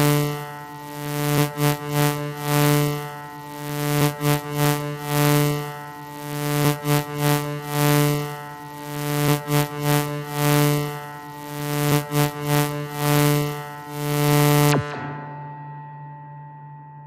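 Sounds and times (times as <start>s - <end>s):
held chord background music: 14.7s - 17.0s.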